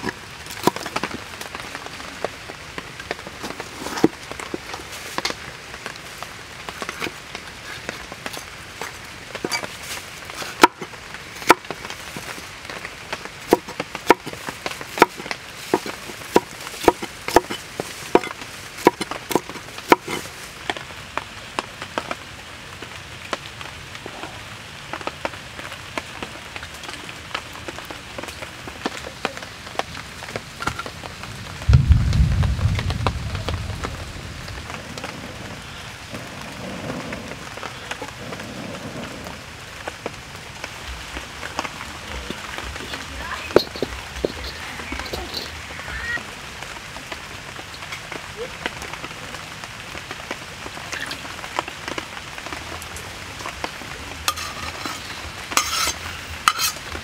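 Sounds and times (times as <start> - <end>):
knife chopping on wooden board: 15.0 - 20.2
low rumble: 31.2 - 37.5.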